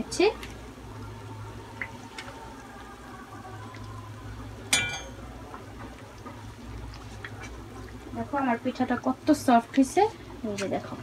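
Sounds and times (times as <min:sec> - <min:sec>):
metal skimmer clinking on wok: 0:04.7 - 0:05.2.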